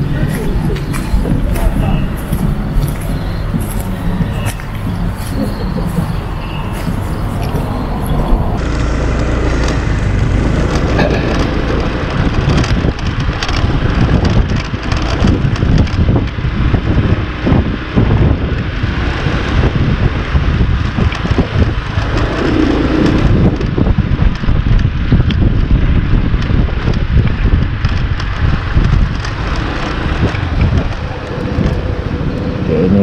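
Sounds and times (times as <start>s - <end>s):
gusty wind buffeting microphone: 0.0s - 33.0s.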